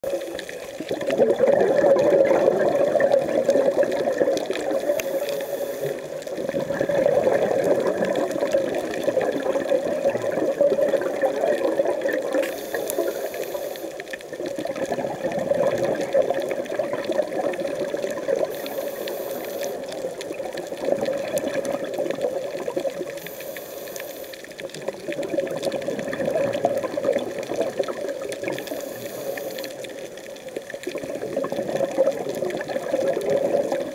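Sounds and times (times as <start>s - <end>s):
faint regulator hiss: 0.0s - 1.1s, 4.4s - 6.5s, 12.1s - 14.4s, 18.3s - 20.8s, 23.0s - 24.9s, 28.3s - 30.8s
gurgling exhaled bubbles underwater: 0.0s - 33.9s.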